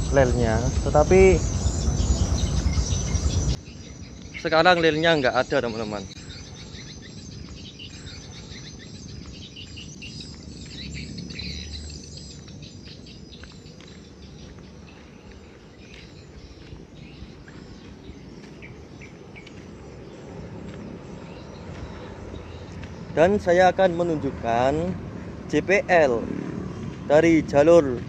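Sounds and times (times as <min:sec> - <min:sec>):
low rumble: 0:00.0 - 0:04.3
small birds chirping: 0:00.0 - 0:28.0.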